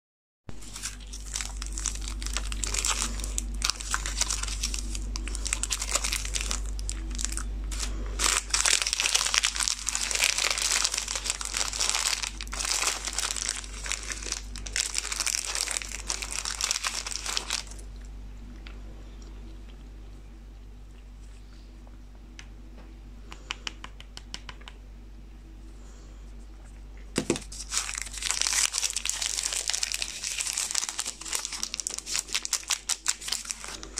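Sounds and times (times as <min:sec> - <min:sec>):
plastic wrappers crinkling: 0:00.5 - 0:18.0, 0:27.2 - 0:33.9.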